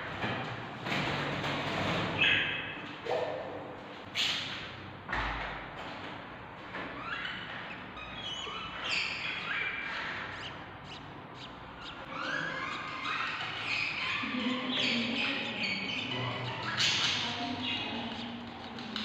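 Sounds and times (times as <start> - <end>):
budgerigar chicks chirping: 7.0 - 19.0.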